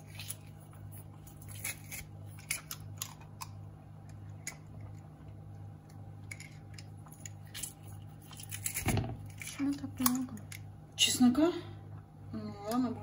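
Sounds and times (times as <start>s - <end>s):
garlic being scraped: 0.0s - 3.2s
steady low hum: 0.0s - 13.0s.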